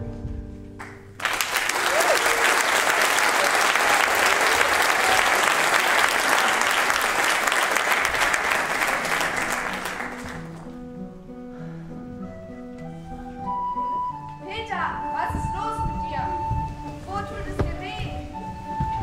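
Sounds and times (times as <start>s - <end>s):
audience applauding: 0.8s - 10.8s
slow instrumental melody: 9.5s - 17.1s.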